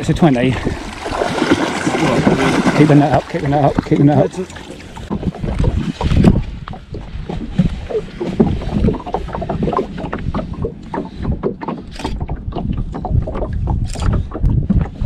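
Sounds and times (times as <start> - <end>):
water lapping against boat: 0.0 - 15.0
wind rumbling on microphone: 0.0 - 15.0
small irregular knocks: 5.0 - 15.0.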